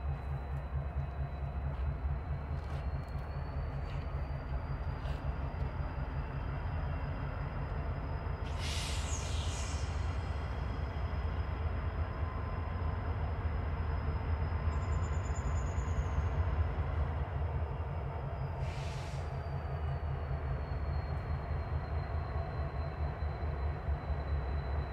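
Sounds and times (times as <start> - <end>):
diesel locomotive rumble: 0.0 - 24.9
brief high hiss: 8.5 - 10.0.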